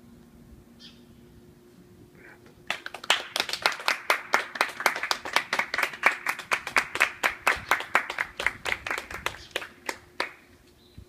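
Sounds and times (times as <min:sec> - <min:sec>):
hand clapping: 0:02.7 - 0:10.4.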